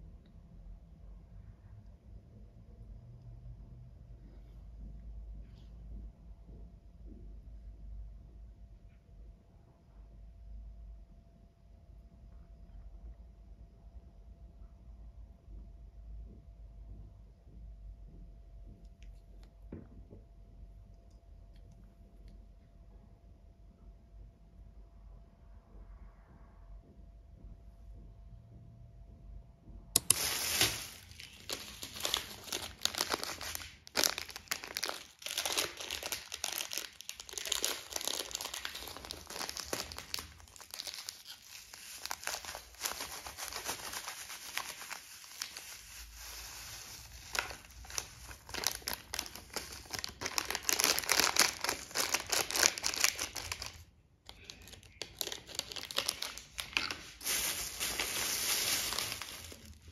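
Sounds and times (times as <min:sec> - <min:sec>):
crinkly material crackling: 0:30.0 - 0:59.9.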